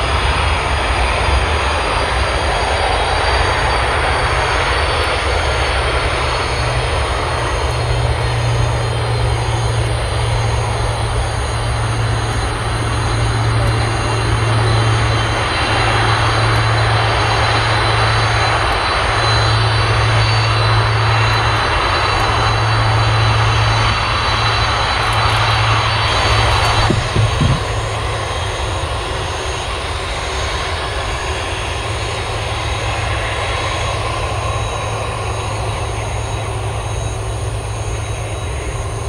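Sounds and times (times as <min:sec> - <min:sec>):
jet engines rumbling: 0:00.0 - 0:39.0.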